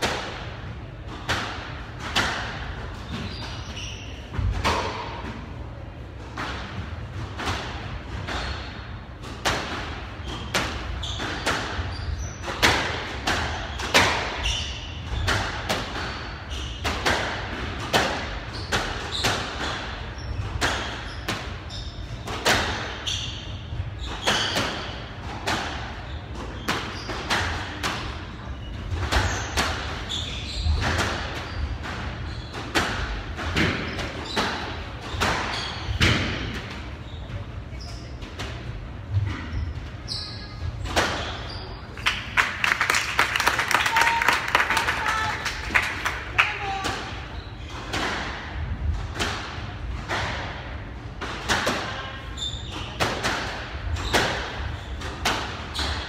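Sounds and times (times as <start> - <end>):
squash ball hitting rackets and walls: 0.0 - 42.6, 45.6 - 56.0
shoes squeaking on wooden floor: 10.3 - 12.4.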